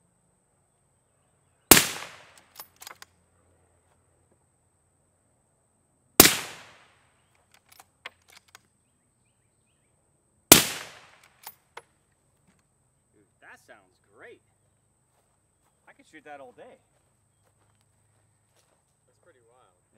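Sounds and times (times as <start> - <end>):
suppressed rifle shots: 1.7 - 2.7, 6.2 - 6.9, 10.5 - 11.5
rifle bolt clicks: 1.9 - 3.1.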